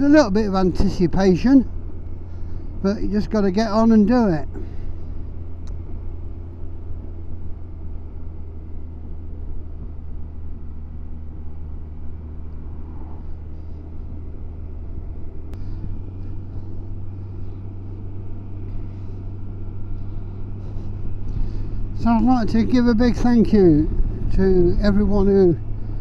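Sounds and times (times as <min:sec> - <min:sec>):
motorcycle engine running: 0:00.0 - 0:26.0
road and wind noise: 0:00.0 - 0:26.0.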